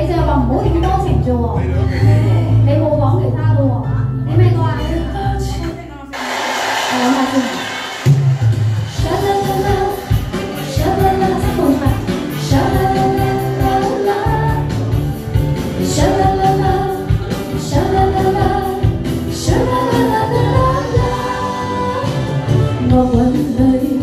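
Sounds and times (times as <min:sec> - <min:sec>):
karaoke backing track: 0:00.0 - 0:24.0
woman singing into a microphone: 0:08.9 - 0:15.0, 0:15.8 - 0:24.0.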